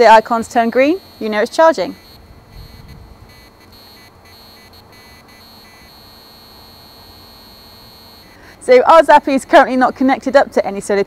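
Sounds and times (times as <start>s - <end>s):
high-pitched electronic whine: 0.0s - 8.8s
short faint beeps: 0.9s - 8.6s.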